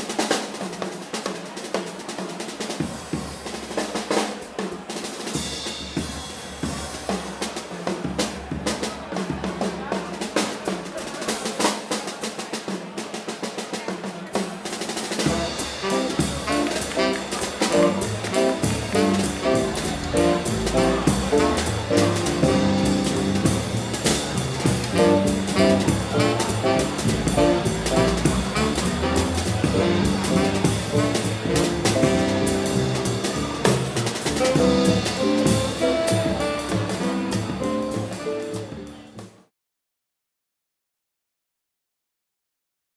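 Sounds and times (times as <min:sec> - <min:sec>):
snare and cymbal strokes: 0:00.0 - 0:09.4, 0:10.2 - 0:38.8
jazz band swinging: 0:00.0 - 0:39.5
saxophone: 0:15.2 - 0:39.1.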